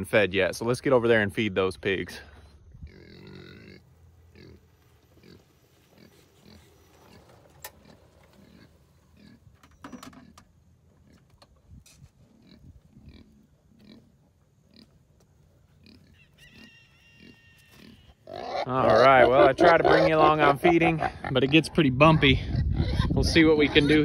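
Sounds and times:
pig grunting: 2.8s - 9.5s, 12.2s - 15.0s, 15.8s - 24.0s.

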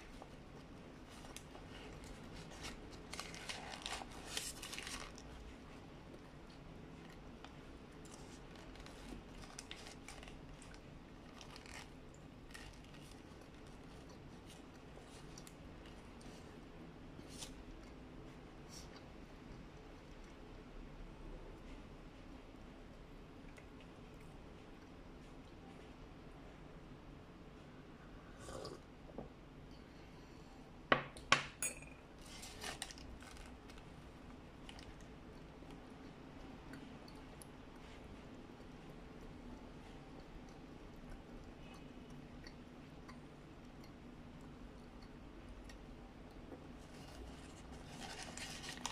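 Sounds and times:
paper wrapper crinkling: 1.1s - 5.5s, 8.1s - 15.4s, 32.2s - 33.9s, 46.8s - 48.9s.

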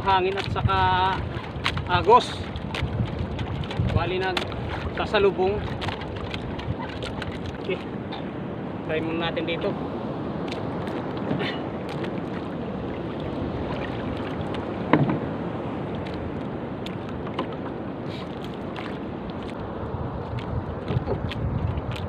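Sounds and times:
sea water sloshing: 0.0s - 22.0s
wind on microphone: 0.0s - 22.0s
knock against boat: 14.9s - 15.3s.

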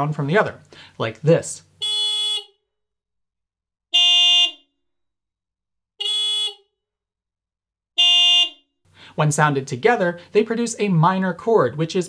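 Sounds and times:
car horn blasts: 1.8s - 2.6s, 3.9s - 4.7s, 6.0s - 6.7s, 8.0s - 8.6s.

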